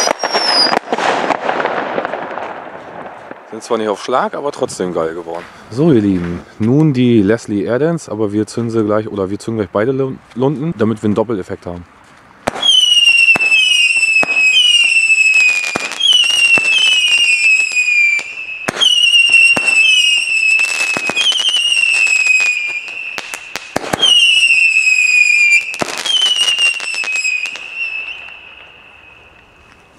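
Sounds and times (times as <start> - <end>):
whistling fireworks: 0.0 - 4.3, 12.4 - 29.9
firework crackling and pops: 0.0 - 6.8, 12.2 - 29.9.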